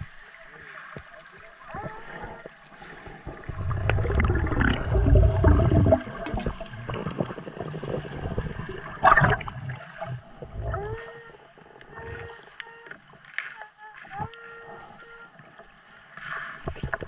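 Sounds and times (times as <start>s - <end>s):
high ringing tone: 6.3s - 6.8s.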